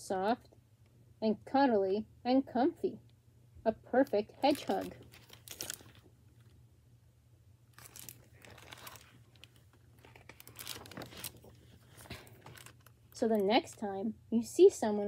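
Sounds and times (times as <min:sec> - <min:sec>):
plastic book jacket crinkling: 0:04.2 - 0:06.6, 0:07.7 - 0:13.9.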